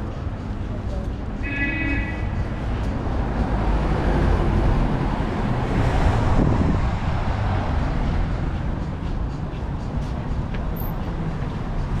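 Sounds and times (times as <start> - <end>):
street traffic passing: 0.0 - 12.0
wind on microphone: 5.6 - 7.4.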